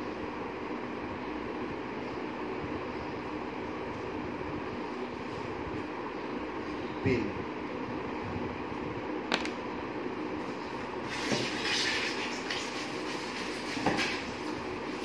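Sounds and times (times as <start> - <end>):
steady low hum: 0.0 - 11.3.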